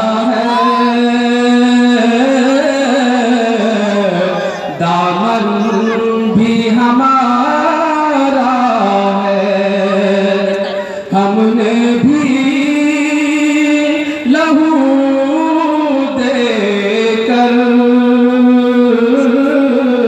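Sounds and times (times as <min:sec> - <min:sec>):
man singing into microphone: 0:00.0 - 0:20.0
singer breathing: 0:04.3 - 0:04.8, 0:10.7 - 0:11.2.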